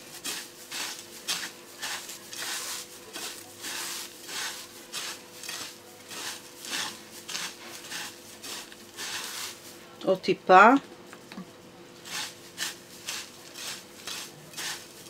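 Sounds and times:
fingers rubbing breadcrumbs on plate: 0:00.0 - 0:09.8, 0:12.0 - 0:15.0.

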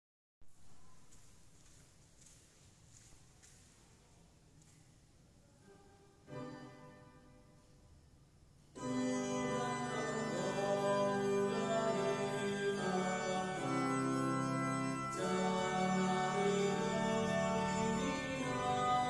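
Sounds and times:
organ sustained chords: 0:06.2 - 0:19.0.

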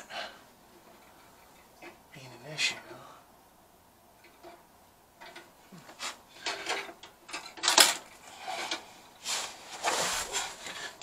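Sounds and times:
metal clinking and scraping: 0:04.2 - 0:04.6, 0:05.2 - 0:11.0.

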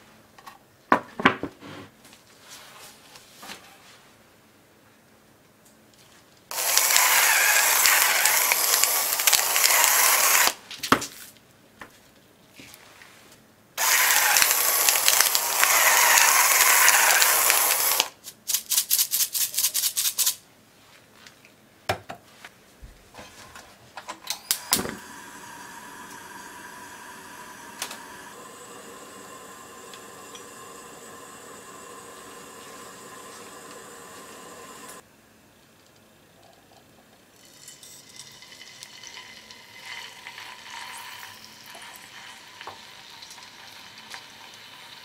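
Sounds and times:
electric salt mill grinding: 0:06.5 - 0:10.6, 0:13.8 - 0:18.1, 0:24.5 - 0:35.0, 0:37.4 - 0:45.0
gas burner hissing: 0:06.5 - 0:10.6, 0:13.8 - 0:18.1, 0:24.3 - 0:35.0, 0:38.8 - 0:45.0
gas burner igniter click: 0:06.5 - 0:10.6, 0:13.8 - 0:18.1, 0:24.4 - 0:35.0
quick clicks: 0:06.5 - 0:10.6, 0:13.8 - 0:18.1.

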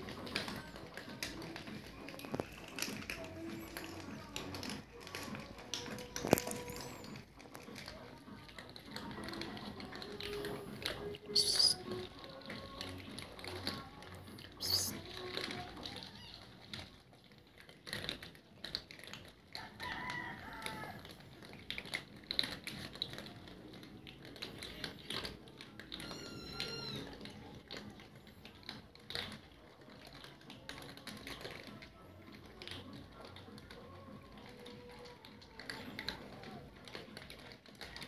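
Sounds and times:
cats crunching dry kibble: 0:00.0 - 0:38.0
cat meowing: 0:11.3 - 0:12.0, 0:15.6 - 0:16.7, 0:25.9 - 0:27.5.

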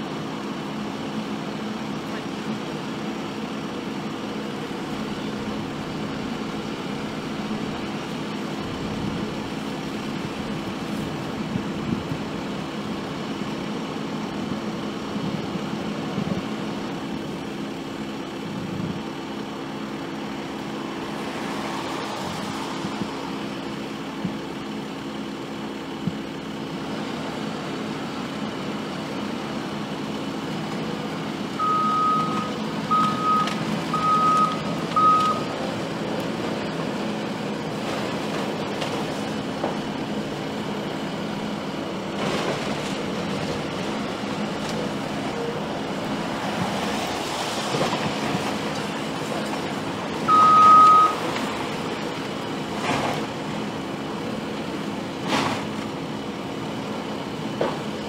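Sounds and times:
diesel engine running: 0:00.0 - 0:58.0
reversing alarm beeping: 0:31.6 - 0:35.6, 0:50.3 - 0:51.2.

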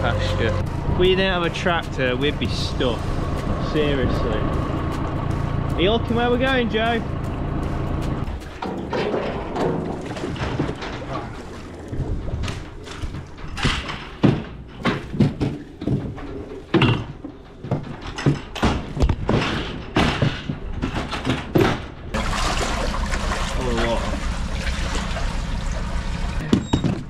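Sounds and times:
low rumble: 0:00.0 - 0:10.2
hooves clattering against trailer: 0:00.0 - 0:22.2.

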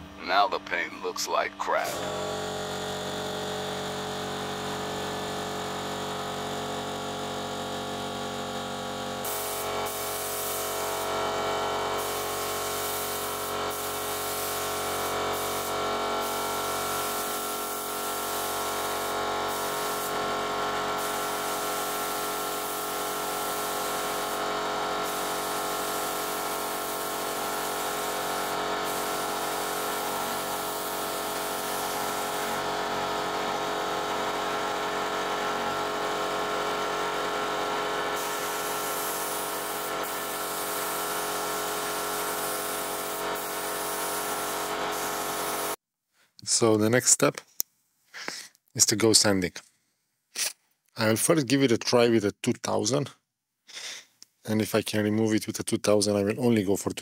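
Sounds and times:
air compressor humming: 0:01.7 - 0:45.8
paint spray gun hissing: 0:09.2 - 0:32.8, 0:38.0 - 0:45.8.

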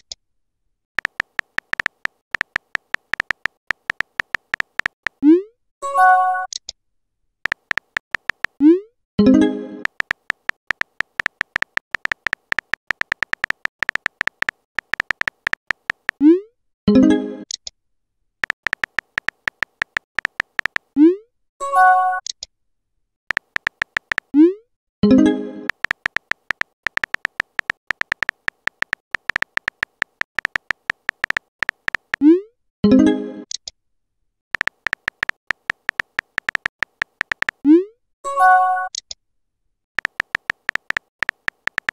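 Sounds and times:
keyboard typing clicks: 0:01.0 - 0:05.2, 0:07.4 - 0:08.6, 0:09.8 - 0:16.2, 0:18.4 - 0:21.0, 0:23.3 - 0:24.4, 0:25.6 - 0:32.2, 0:34.6 - 0:37.6, 0:40.0 - 0:41.9.

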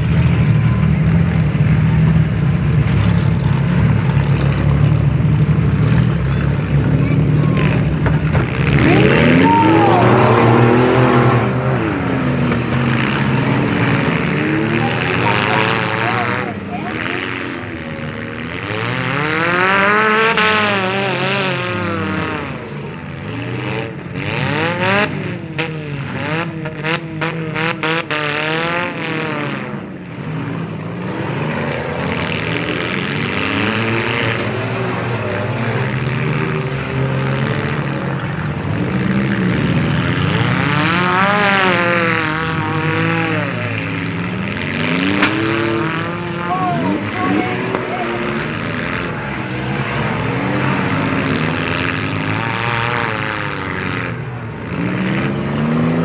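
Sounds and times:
car engines revving: 0:00.0 - 0:56.0
sharp bangs and clatters: 0:45.0 - 0:45.7.

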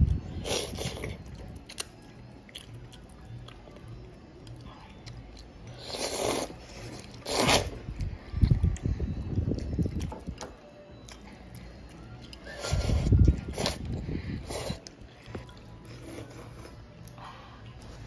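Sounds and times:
child chewing: 0:00.0 - 0:18.0
child slurping noodles: 0:05.8 - 0:06.6, 0:07.2 - 0:07.8, 0:12.5 - 0:14.8.

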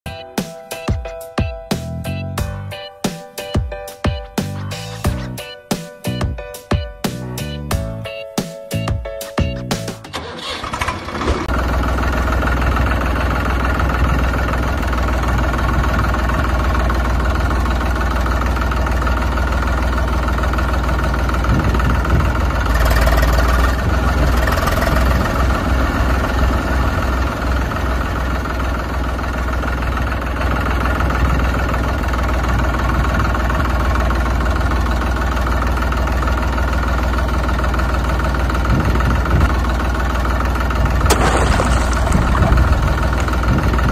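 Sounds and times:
diesel engine idling: 0:10.2 - 0:43.9.

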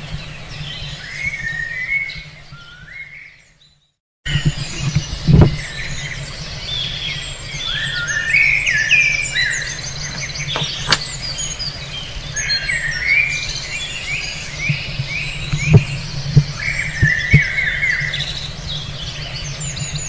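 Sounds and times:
small birds chirping and twittering: 0:00.0 - 0:20.0
sharp click: 0:10.1 - 0:11.3.

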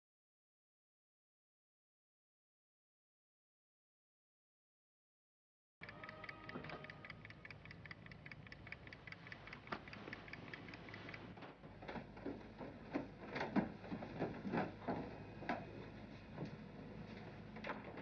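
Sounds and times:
clock ticking: 0:05.8 - 0:11.4.

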